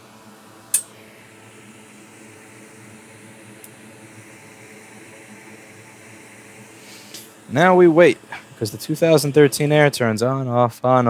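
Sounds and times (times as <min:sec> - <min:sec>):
fan-like hum: 0:00.0 - 0:11.0
sharp click: 0:00.7 - 0:00.9.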